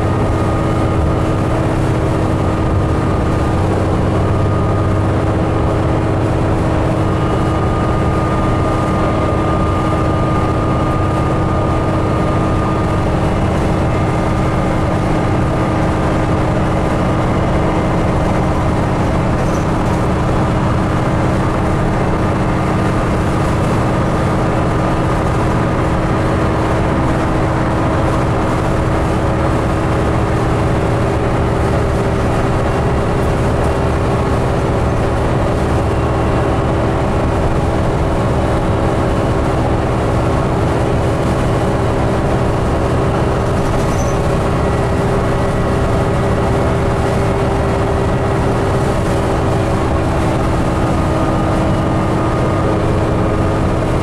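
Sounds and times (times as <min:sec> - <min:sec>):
bus engine drone: 0:00.0 - 0:54.0
constant hum: 0:00.0 - 0:54.0
road rumble: 0:00.0 - 0:54.0.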